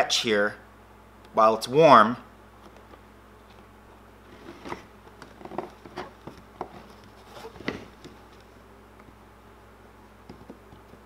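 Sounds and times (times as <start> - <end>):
fingers rustling on vinyl: 2.6 - 9.3.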